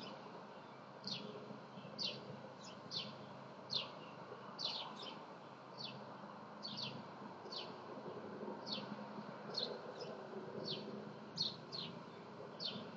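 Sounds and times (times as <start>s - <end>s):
faint background hum: 0.0s - 12.9s
small bird chirping: 12.6s - 12.9s.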